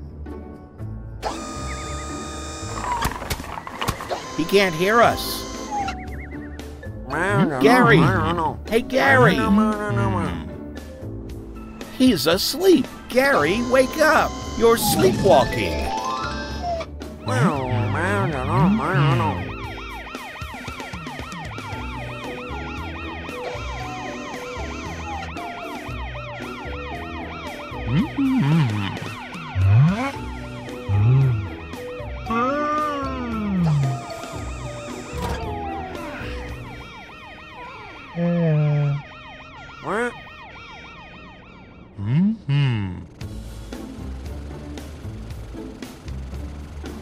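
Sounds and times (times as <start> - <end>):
siren yelping: 4.0 - 6.6, 7.2 - 8.4, 13.1 - 42.0
background music with bass: 4.4 - 16.1, 16.9 - 20.1, 21.4 - 36.8, 42.0 - 47.0
wordless pitched vocal sounds: 7.1 - 10.6.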